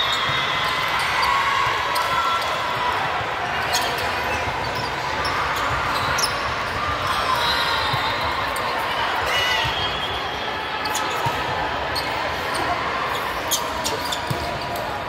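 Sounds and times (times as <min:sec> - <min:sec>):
hubbub of players and spectators: 0:00.0 - 0:15.0
sneakers squeaking on floor: 0:03.5 - 0:15.0.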